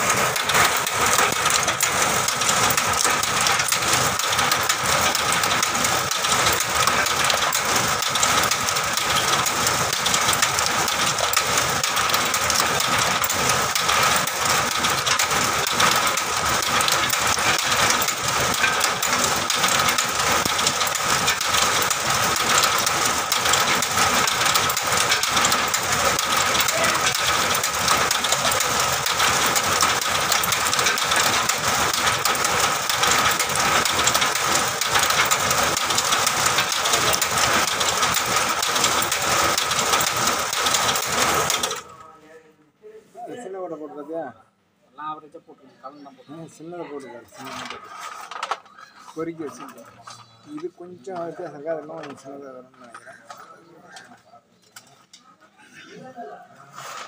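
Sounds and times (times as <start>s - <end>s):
machine whining: 0.0s - 42.1s.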